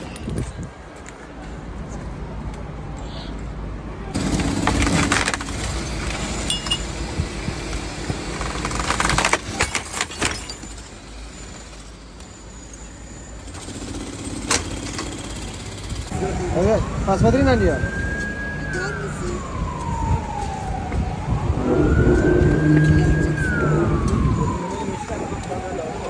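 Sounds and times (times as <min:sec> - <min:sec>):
heavy machinery running: 0:04.2 - 0:09.2
broken glass and rubble clattering: 0:04.3 - 0:06.9, 0:08.5 - 0:12.1.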